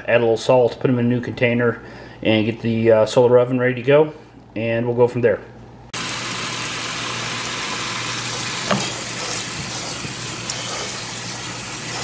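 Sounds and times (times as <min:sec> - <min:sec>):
water spraying into a metal colander: 0:06.0 - 0:12.0.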